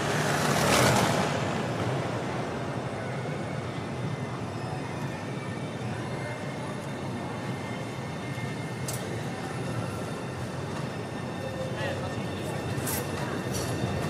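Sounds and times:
tram rumbling on track: 0.0 - 14.0
wheel squeal on rail: 2.9 - 14.0.

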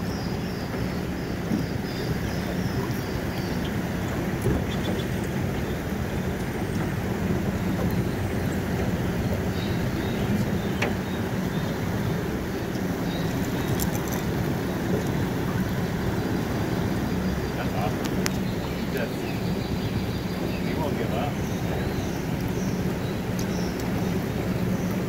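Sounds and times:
river current rushing: 0.0 - 25.0
wind buffeting microphone: 0.0 - 25.0
faint clicks: 12.7 - 14.3, 17.9 - 18.6, 22.1 - 25.0.

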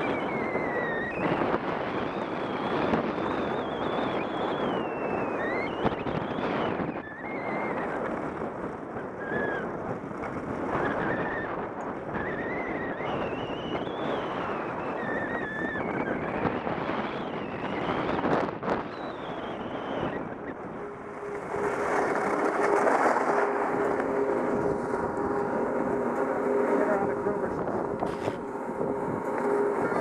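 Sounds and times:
thin wavering whistle: 0.0 - 8.0, 10.8 - 18.2, 18.8 - 27.3
wind rushing over microphone: 0.0 - 30.0.

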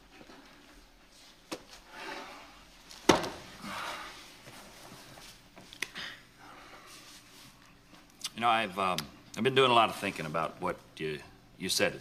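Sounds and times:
soft rustling on sofa: 4.3 - 5.7.

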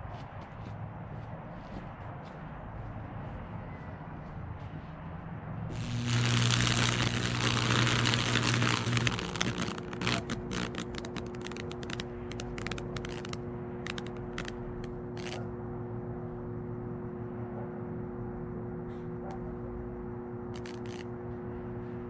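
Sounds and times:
loud electrical buzz: 5.7 - 15.4, 20.5 - 21.1
wood crackling and snapping: 5.7 - 15.4, 20.6 - 21.0.

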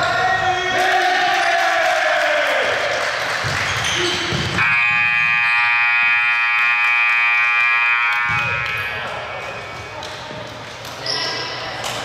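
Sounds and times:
crowd noise: 0.0 - 12.0
scoreboard buzzer blast: 4.6 - 9.1.

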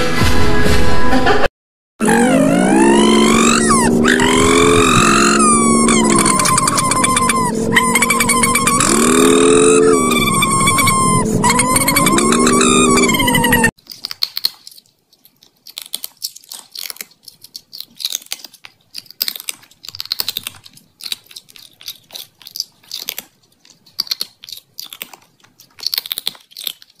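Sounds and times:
cat chewing clicks: 13.8 - 27.0.

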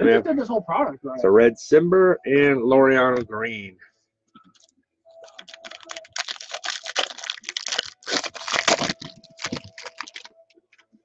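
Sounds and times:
foil wrapper tearing and crinkling: 4.6 - 10.4.

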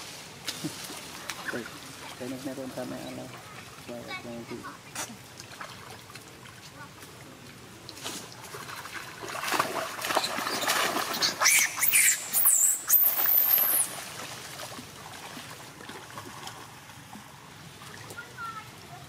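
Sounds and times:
gentle water sounds: 0.0 - 19.0
monkeys screaming: 11.1 - 13.9.

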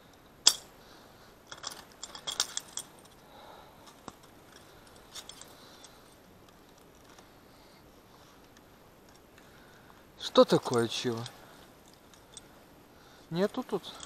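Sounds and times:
metal trap clinking and rattling: 0.4 - 0.7, 1.5 - 3.2, 3.8 - 7.2, 10.2 - 12.6, 13.3 - 14.0.

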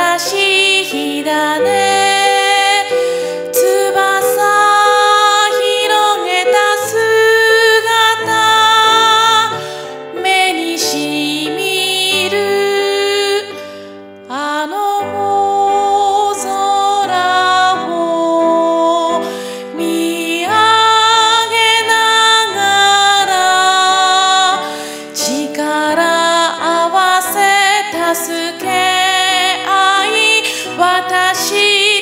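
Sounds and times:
piano accompaniment: 0.0 - 32.0
woman singing: 0.0 - 32.0.

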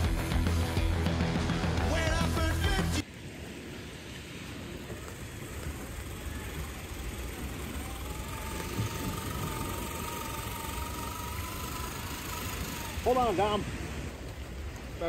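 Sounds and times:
electric motor and gears whining: 4.8 - 14.4.

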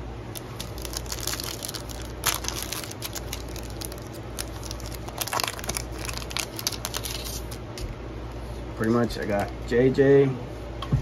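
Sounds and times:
foil wrapper tearing and crinkling: 0.4 - 7.6.

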